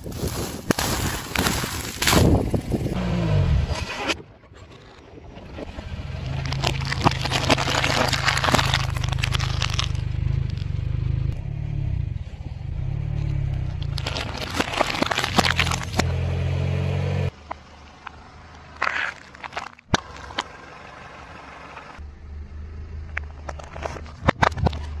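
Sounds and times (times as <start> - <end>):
glass bulbs cracking under tyre: 0.0 - 3.0, 6.1 - 10.8, 13.8 - 16.1, 18.6 - 20.6
car engine humming: 5.4 - 25.0.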